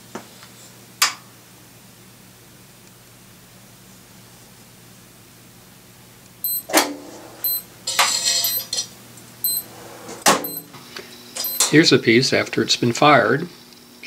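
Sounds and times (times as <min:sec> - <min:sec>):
short high beeps: 0:06.4 - 0:06.7, 0:07.4 - 0:07.7, 0:08.4 - 0:08.7, 0:09.4 - 0:09.7, 0:10.4 - 0:10.7, 0:11.4 - 0:11.7.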